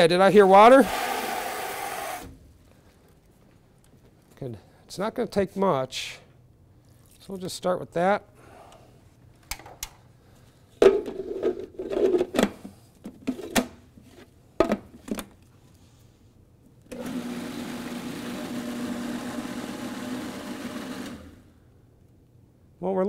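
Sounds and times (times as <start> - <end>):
food processor motor running: 0.8 - 2.3, 17.0 - 21.4.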